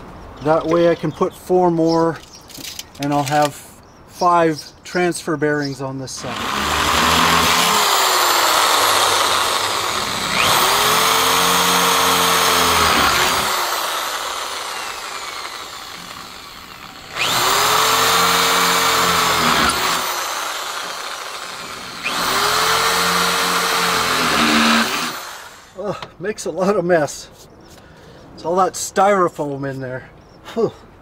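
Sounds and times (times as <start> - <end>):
electric drill whining: 6.2 - 25.8.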